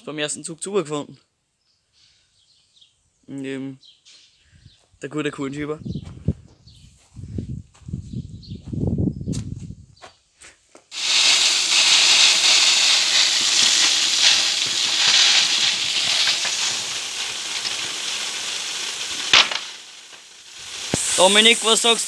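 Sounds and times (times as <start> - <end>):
grain pouring into bag: 10.9 - 22.0.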